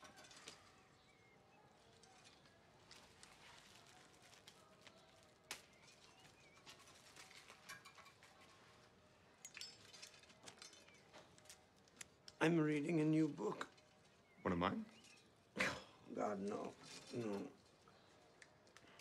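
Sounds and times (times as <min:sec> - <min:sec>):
faint bird chirps: 0:04.7 - 0:08.2, 0:12.7 - 0:19.0.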